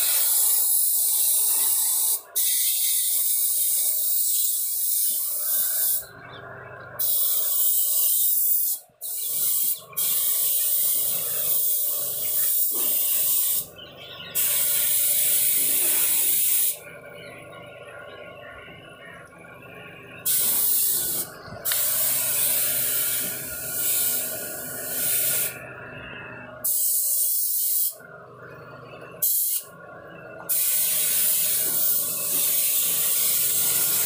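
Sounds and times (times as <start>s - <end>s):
spray gun hissing: 0.0s - 6.0s, 7.0s - 13.7s, 14.4s - 16.8s, 20.3s - 25.6s, 26.6s - 28.0s, 29.2s - 29.7s, 30.5s - 34.0s.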